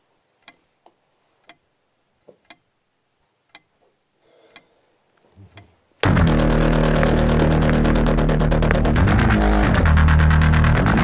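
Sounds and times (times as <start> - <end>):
clock ticking: 0.4 - 0.7, 1.4 - 1.7, 2.4 - 2.8, 3.4 - 3.8.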